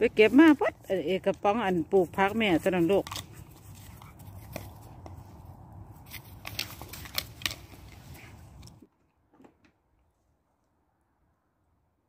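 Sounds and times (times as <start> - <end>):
dog chewing plastic pot: 2.1 - 4.8, 6.1 - 8.0.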